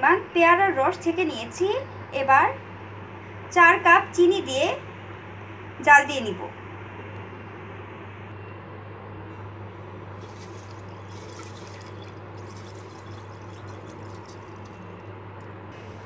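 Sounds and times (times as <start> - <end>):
sugar pouring hiss: 10.2 - 15.0.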